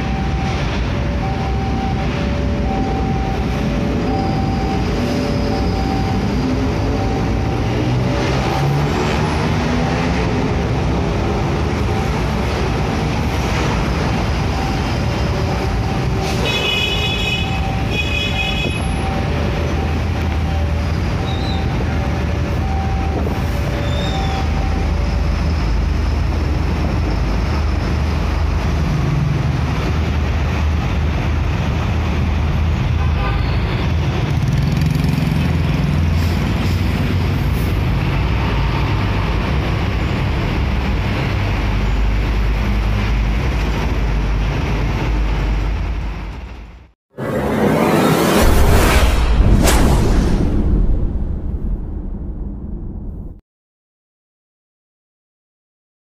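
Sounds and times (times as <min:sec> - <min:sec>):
two-tone warning bell ringing: 0:00.0 - 0:08.3, 0:17.3 - 0:25.4
truck and motorcycle engines: 0:00.0 - 0:49.0.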